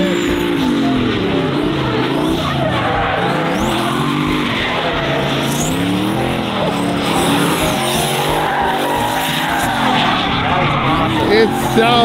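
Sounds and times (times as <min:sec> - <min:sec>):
car engine revving: 0:00.0 - 0:12.0
tyres squealing: 0:00.0 - 0:12.0.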